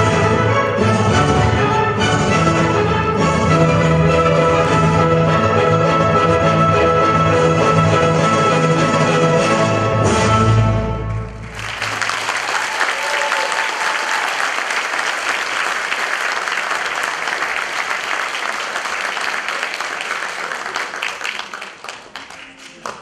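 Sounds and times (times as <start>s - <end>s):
music: 0.0s - 11.8s
audience applauding: 11.2s - 23.0s.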